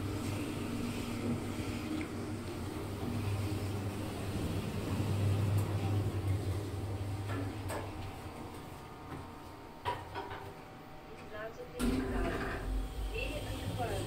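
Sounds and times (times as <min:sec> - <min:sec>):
elevator cab humming: 0:00.0 - 0:09.4.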